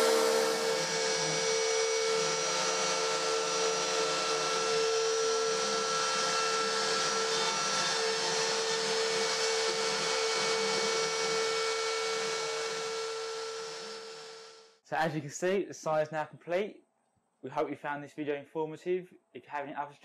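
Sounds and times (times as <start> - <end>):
dust extractor rushing: 0.0 - 3.3
router spindle whining: 0.0 - 14.7.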